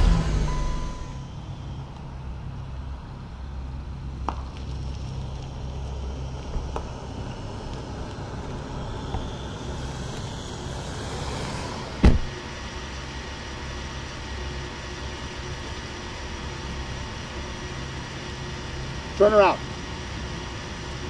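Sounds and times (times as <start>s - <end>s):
car engine rumbling: 0.0s - 21.0s
heavy thump: 12.0s - 12.4s.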